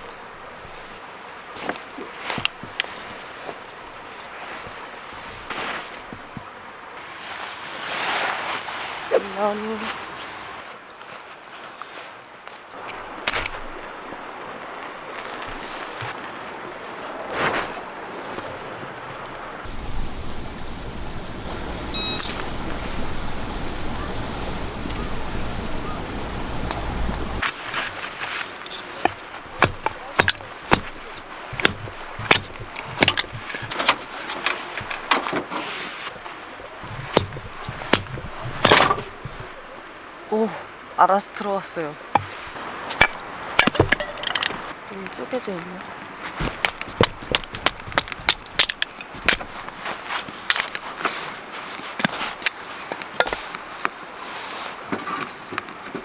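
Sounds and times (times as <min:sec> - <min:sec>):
rustle of kindling: 0:00.0 - 0:16.4, 0:17.2 - 0:39.9, 0:42.1 - 0:56.0
hatchet chopping log: 0:29.0 - 0:33.9, 0:36.9 - 0:39.6, 0:43.0 - 0:44.1, 0:46.4 - 0:49.6.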